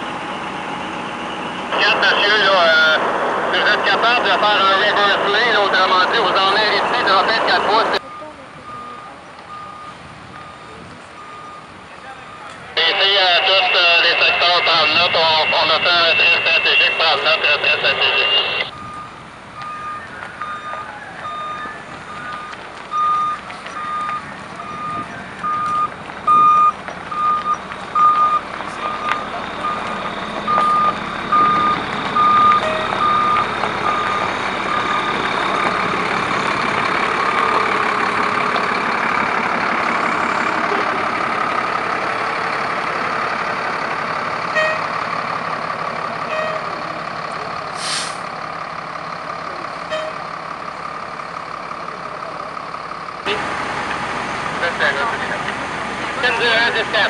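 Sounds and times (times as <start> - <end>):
truck engine running: 0.0 - 57.0
reversing alarm beeping: 3.8 - 36.3, 40.0 - 45.0, 49.8 - 50.4.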